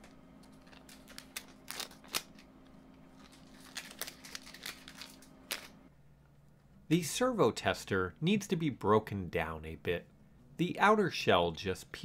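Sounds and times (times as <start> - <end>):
plastic bag crinkling: 3.1 - 5.8.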